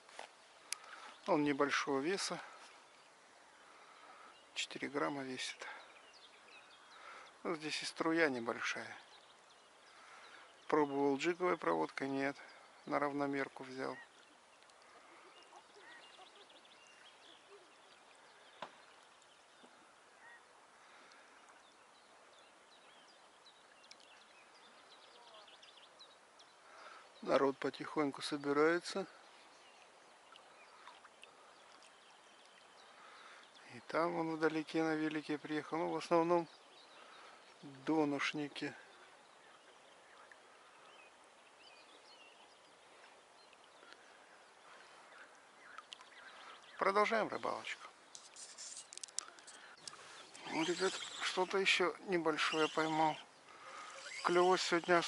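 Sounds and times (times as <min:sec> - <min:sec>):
faint riverside ambience: 0:00.0 - 0:55.0
faint bird chirps: 0:12.1 - 0:27.6, 0:28.3 - 0:55.0
small bird chirps: 0:48.2 - 0:55.0.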